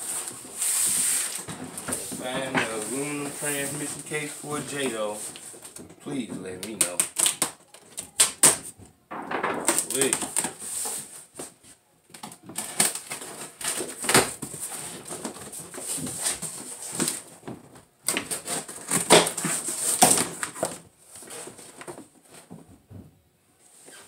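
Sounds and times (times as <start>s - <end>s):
box scraping out of cardboard carton: 0.0s - 5.2s
cardboard flaps crinkling: 0.0s - 8.8s, 9.6s - 22.7s.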